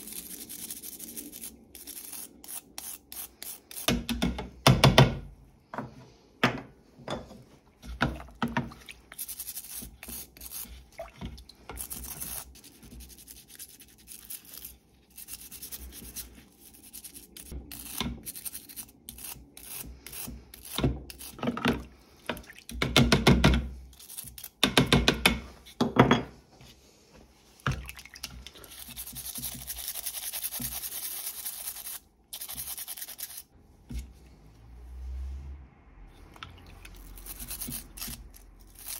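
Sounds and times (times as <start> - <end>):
stiff brush scrubbing metal: 8.8 - 21.4, 28.6 - 34.2, 36.8 - 38.9
liquid splashing and dripping: 36.3 - 37.0.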